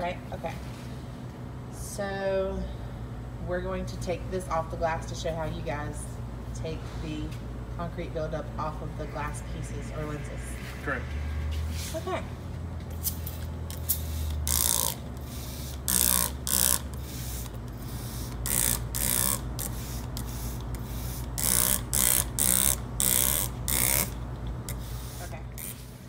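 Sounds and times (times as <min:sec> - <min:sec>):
spray bottle hissing sprays: 0:13.0 - 0:24.1.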